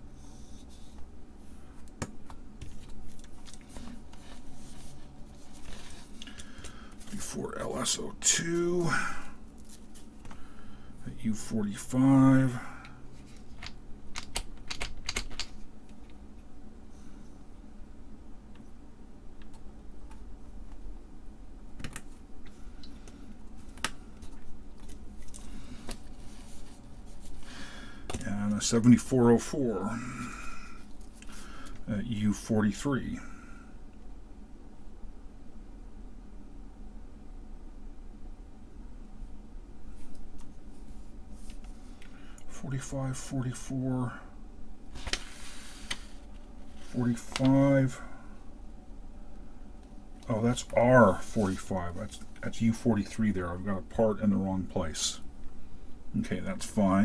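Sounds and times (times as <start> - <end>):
chips clicking into sockets: 13.6 - 15.6.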